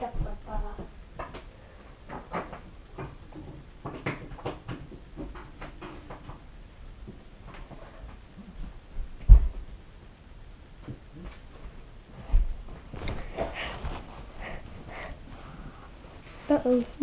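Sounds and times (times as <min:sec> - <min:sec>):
objects knocking and clicking: 0:02.1 - 0:06.4.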